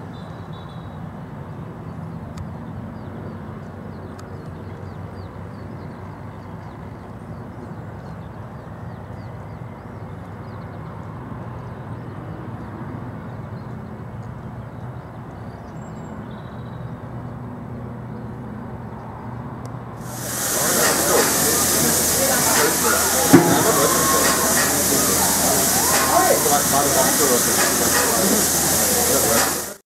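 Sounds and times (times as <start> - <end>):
distant diesel trucks driving: 20.0 - 29.8.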